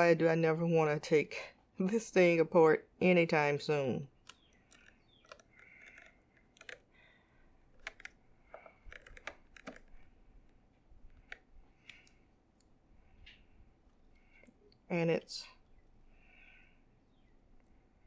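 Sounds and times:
screwdriver clicking and scraping: 4.2s - 6.9s, 7.7s - 12.7s
handling of small device: 4.2s - 7.0s, 7.6s - 14.6s.

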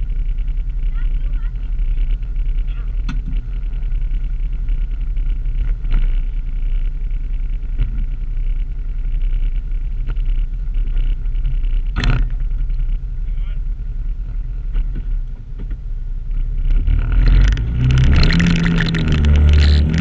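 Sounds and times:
off-road vehicle engine idling: 0.0s - 20.0s.

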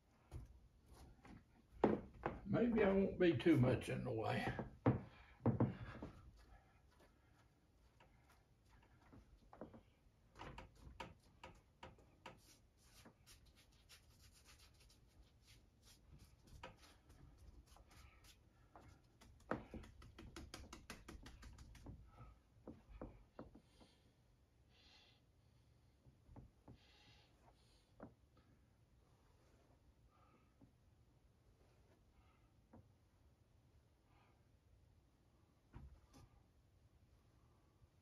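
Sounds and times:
gloved hands handling paint materials: 5.8s - 22.0s.

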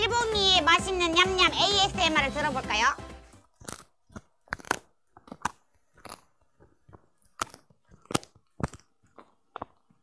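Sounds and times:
dog crunching a hard treat: 3.4s - 10.0s.

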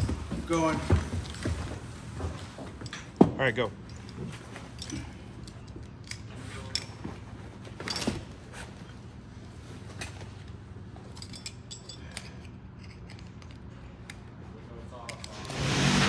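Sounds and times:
metal buckles clinking: 2.8s - 9.1s, 9.8s - 15.5s.

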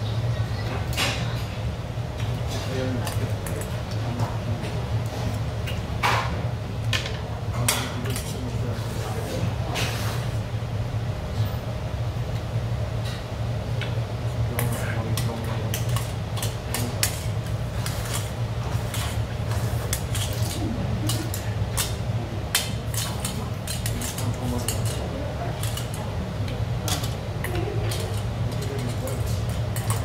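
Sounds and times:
steady low hum: 0.0s - 30.0s
chopsticks clinking on metal bowl: 14.6s - 19.2s, 19.9s - 30.0s.

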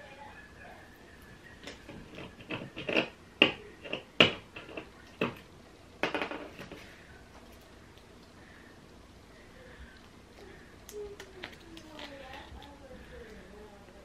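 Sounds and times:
tape crackling: 9.6s - 14.0s.

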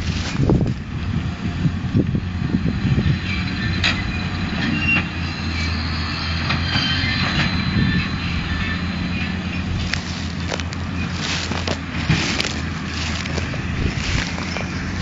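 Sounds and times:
tractor diesel engine droning: 0.0s - 15.0s.

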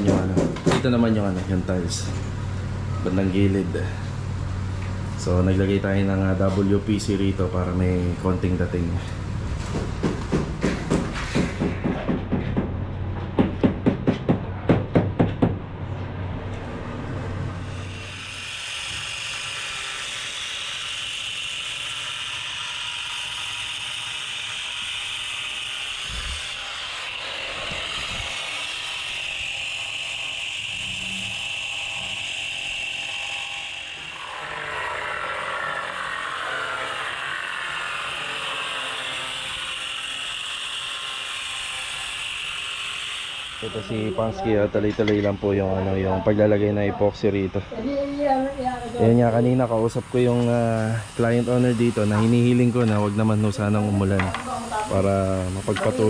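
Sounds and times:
sharp knocks: 0.0s - 0.9s, 9.6s - 15.6s
angle grinder whine: 0.0s - 10.3s, 15.8s - 56.0s.

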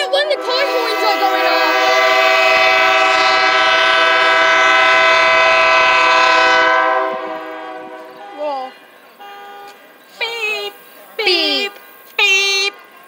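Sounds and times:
locomotive air horn blast: 0.0s - 10.0s.

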